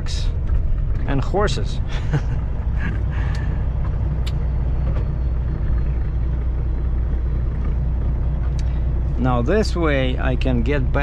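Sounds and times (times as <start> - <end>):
truck engine and road noise: 0.0 - 11.0
faint clicks: 3.2 - 5.1.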